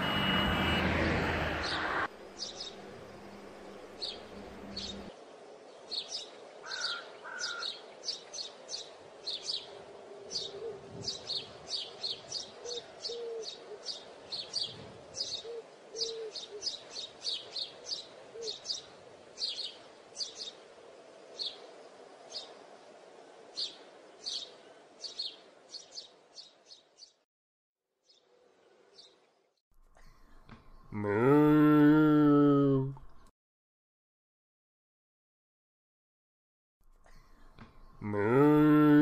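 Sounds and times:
small birds chirping: 0:01.6 - 0:22.9, 0:23.5 - 0:27.2.

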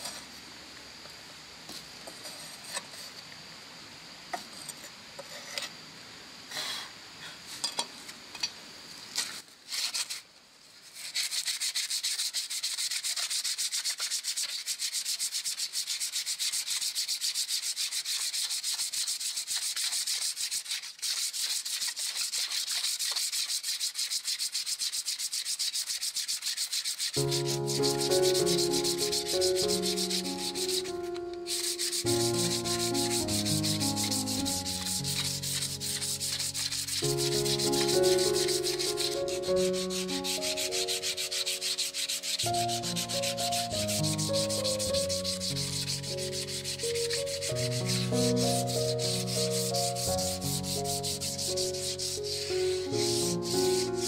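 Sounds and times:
knife scraping wood: 0:09.2 - 0:10.2, 0:10.9 - 0:53.9
sanding wood by hand: 0:09.7 - 0:10.2, 0:10.8 - 0:54.0
musical notes: 0:27.2 - 0:54.0.

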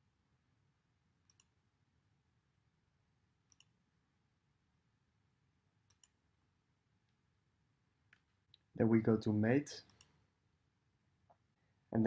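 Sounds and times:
computer mouse clicks: 0:01.2 - 0:01.6, 0:03.5 - 0:03.8, 0:05.8 - 0:06.2, 0:09.8 - 0:10.2.

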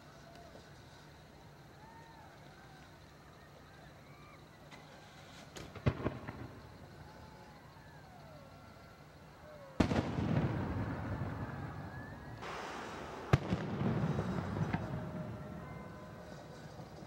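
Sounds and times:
firework hiss: 0:04.8 - 0:07.1, 0:09.8 - 0:17.0
fireworks bangs: 0:05.0 - 0:07.6, 0:09.8 - 0:17.0.

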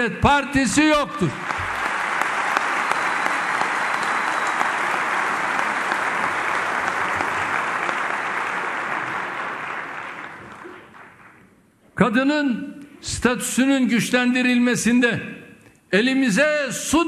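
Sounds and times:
crowd applauding: 0:01.0 - 0:11.6.

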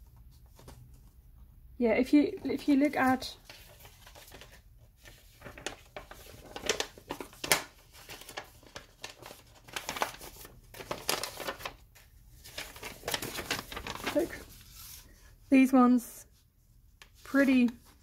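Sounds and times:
paper rustling and crinkling: 0:00.0 - 0:15.5.

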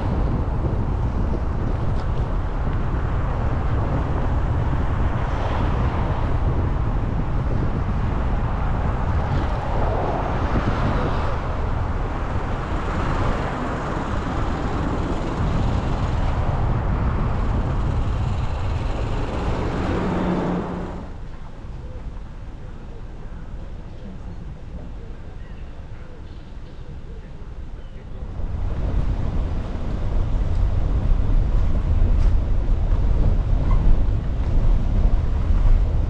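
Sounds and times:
car road and wind rumble: 0:00.0 - 0:36.0
passing traffic: 0:00.0 - 0:36.0.

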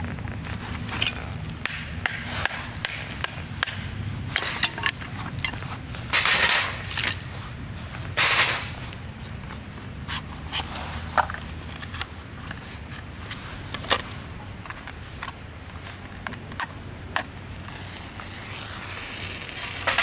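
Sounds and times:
wood scraping on metal grill: 0:00.3 - 0:15.2
wooden sticks knocking: 0:01.0 - 0:07.2.

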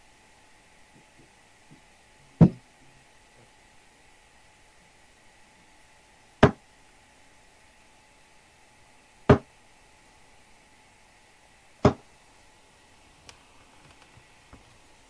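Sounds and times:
darts thudding into dartboard: 0:02.4 - 0:02.6, 0:09.3 - 0:09.5, 0:11.8 - 0:12.0.

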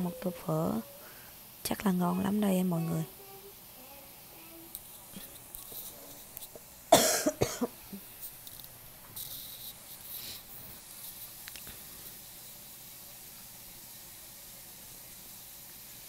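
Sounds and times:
person coughing: 0:06.9 - 0:08.0.

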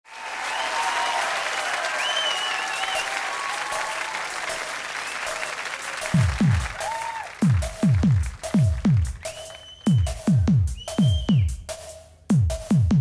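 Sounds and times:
audience applauding and cheering: 0:00.0 - 0:11.2
whistles: 0:00.2 - 0:04.2, 0:05.0 - 0:07.3, 0:09.2 - 0:11.7
electronic kick drum: 0:06.1 - 0:06.8, 0:07.4 - 0:09.3, 0:09.9 - 0:13.0.

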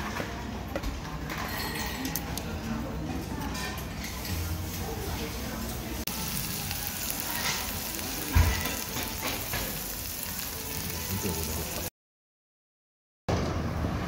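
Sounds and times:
meat sizzling on hot plate: 0:06.0 - 0:11.9.

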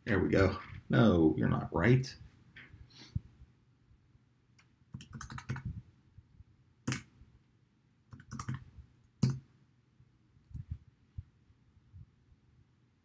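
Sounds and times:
keyboard typing: 0:04.9 - 0:05.8, 0:06.9 - 0:07.1, 0:08.1 - 0:09.4.

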